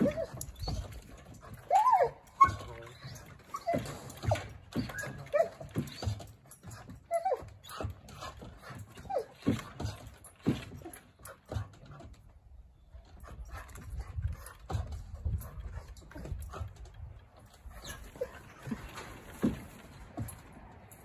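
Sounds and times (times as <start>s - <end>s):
puppy whining: 0.0s - 9.9s, 17.6s - 19.5s.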